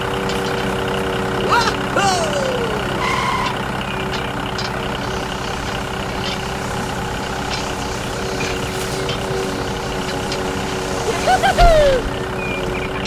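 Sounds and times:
motor hum: 0.0 - 13.0
falling glide tone: 11.0 - 12.2.

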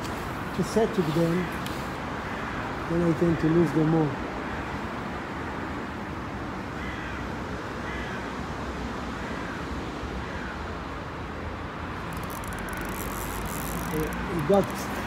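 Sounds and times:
faint bird calls: 12.1 - 15.0.

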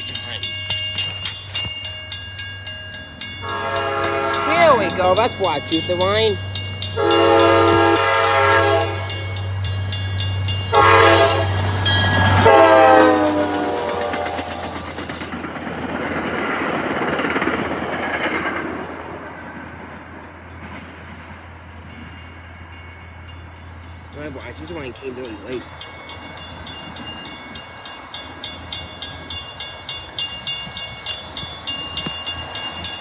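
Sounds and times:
locomotive engine drone: 0.0 - 15.6
train wheels rumbling on rails: 0.0 - 33.0
train horn blasts: 3.4 - 5.1, 7.0 - 9.3, 10.7 - 14.9.

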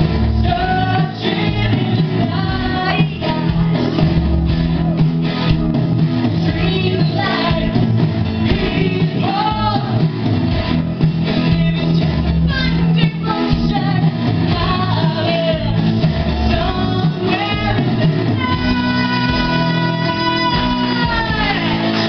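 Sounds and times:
live rock music with singer: 0.0 - 22.0.

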